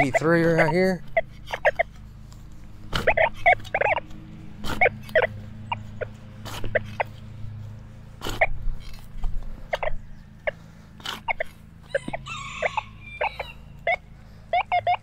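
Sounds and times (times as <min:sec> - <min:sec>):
metal detector tones and chirps: 0:00.0 - 0:02.0, 0:03.0 - 0:04.1, 0:09.7 - 0:10.6, 0:13.1 - 0:15.0.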